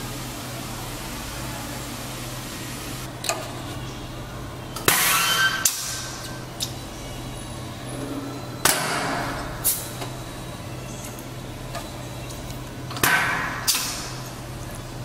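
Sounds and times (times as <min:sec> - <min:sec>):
steady low hum: 0:00.0 - 0:04.9.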